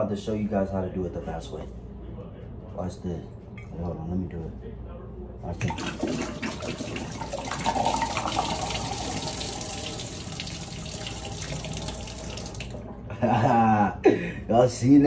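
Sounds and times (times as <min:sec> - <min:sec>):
water pouring into a sink: 0:05.6 - 0:12.8.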